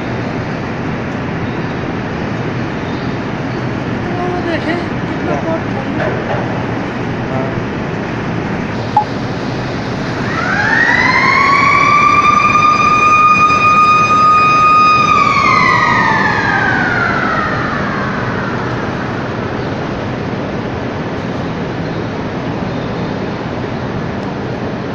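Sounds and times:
industrial background noise: 0:00.0 - 0:24.9
warning siren wailing: 0:08.6 - 0:20.8.

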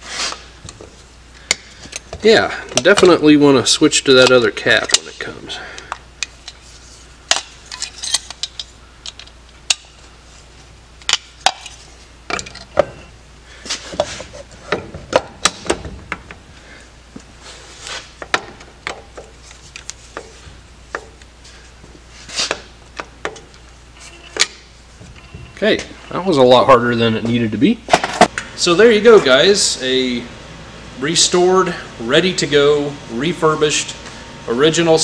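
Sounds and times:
rubbing and handling noises: 0:00.0 - 0:01.2, 0:06.3 - 0:08.8, 0:13.5 - 0:14.8, 0:17.1 - 0:18.3, 0:19.1 - 0:22.8.

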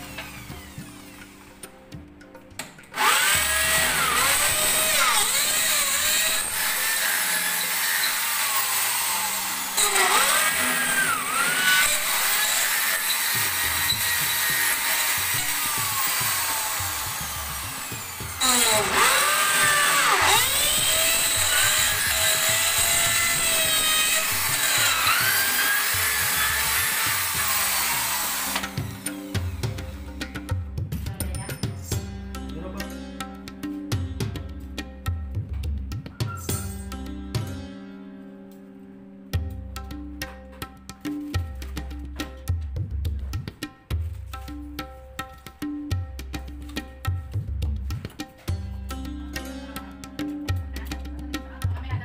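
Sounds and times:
electric drill boring into wall: 0:00.0 - 0:01.8, 0:02.9 - 0:30.0.

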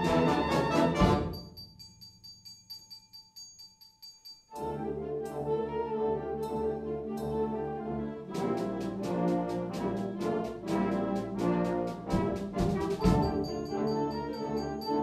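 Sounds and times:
brass-led concert band music: 0:00.0 - 0:01.5, 0:04.6 - 0:15.0.

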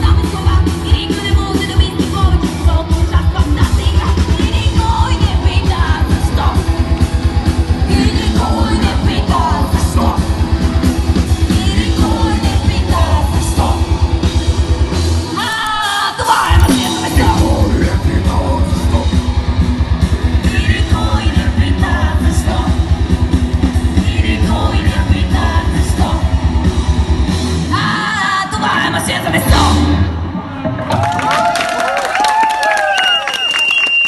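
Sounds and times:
woman singing: 0:00.0 - 0:07.0, 0:07.8 - 0:10.3, 0:11.4 - 0:13.9, 0:15.4 - 0:17.7, 0:27.7 - 0:30.0
live rock band playing: 0:00.0 - 0:31.2.

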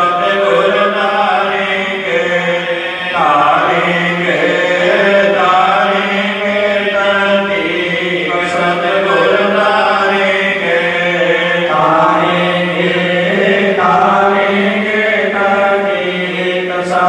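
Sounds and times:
voices chanting a slow hymn: 0:00.0 - 0:17.0.

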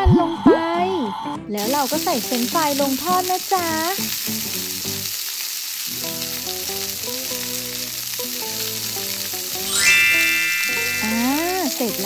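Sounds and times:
frying sizzle: 0:01.6 - 0:12.0
soft simple melody: 0:09.5 - 0:12.0.

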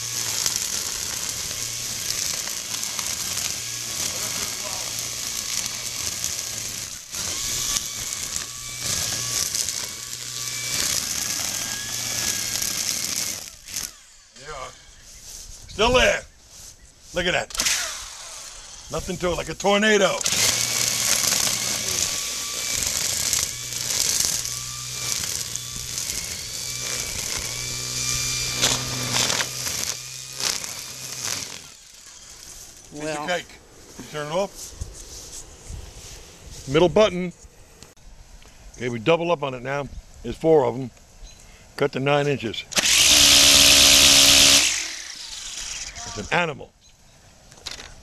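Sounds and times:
string trimmer whirring through grass: 0:00.0 - 0:15.0, 0:17.5 - 0:36.6, 0:42.7 - 0:46.4.

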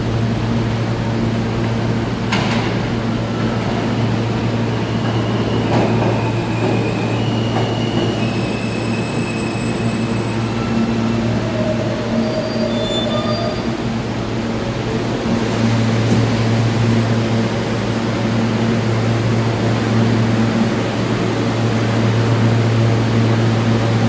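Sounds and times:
subway train pulling in: 0:00.0 - 0:24.0
train wheels squealing: 0:04.6 - 0:13.9.

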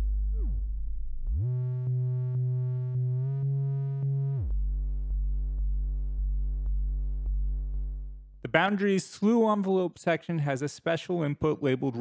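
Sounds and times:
buzzy synthesizer drone pulsing: 0:00.0 - 0:08.4.

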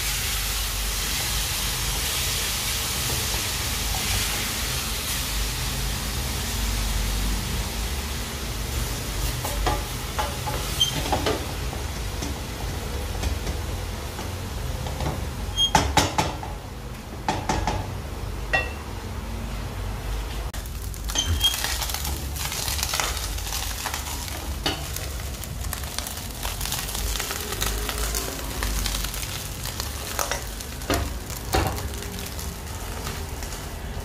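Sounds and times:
food sizzling in a pan: 0:00.0 - 0:15.6, 0:20.6 - 0:34.0
utensil knocking against a pan: 0:17.3 - 0:17.9.

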